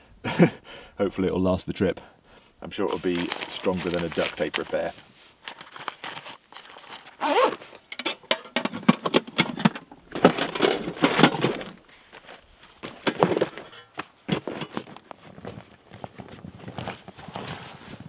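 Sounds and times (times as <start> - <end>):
rustling of gear being packed: 2.8 - 8.2, 9.0 - 18.0.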